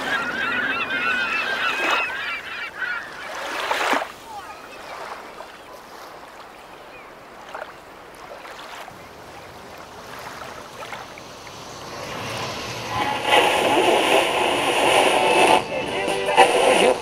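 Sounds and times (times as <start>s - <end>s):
wind: 0.0s - 17.0s
water washing: 7.2s - 17.0s
street traffic noise: 8.9s - 17.0s.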